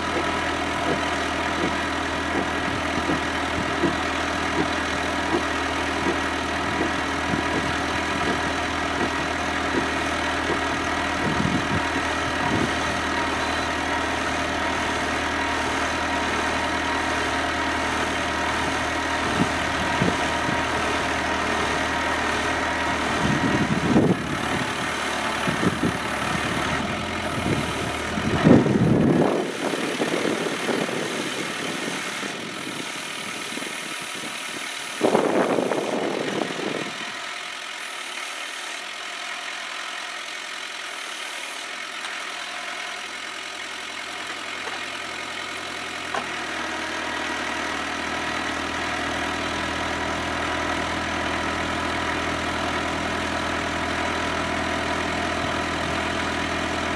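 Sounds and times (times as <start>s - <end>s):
tractor diesel engine running: 0.0s - 56.9s.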